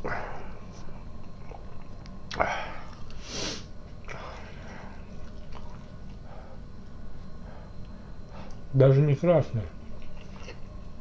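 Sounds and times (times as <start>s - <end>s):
man sniffing and breathing hard: 2.5s - 4.7s.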